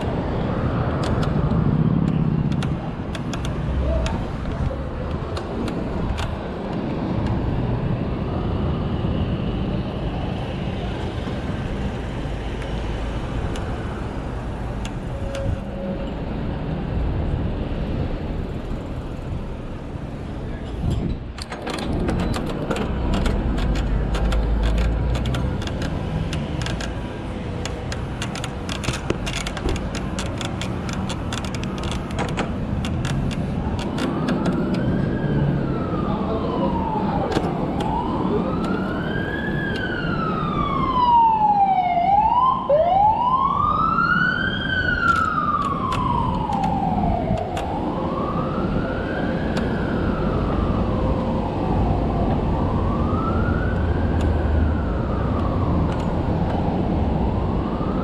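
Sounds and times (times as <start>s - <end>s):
wind and road noise: 0.0s - 58.0s
siren wailing: 33.6s - 58.0s.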